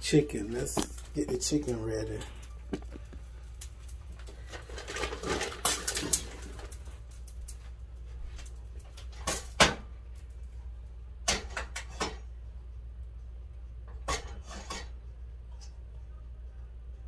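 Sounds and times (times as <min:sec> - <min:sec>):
kitchen knocks and clatters: 0:00.6 - 0:03.2, 0:04.4 - 0:06.8, 0:09.0 - 0:09.9, 0:11.2 - 0:12.3, 0:13.9 - 0:15.0.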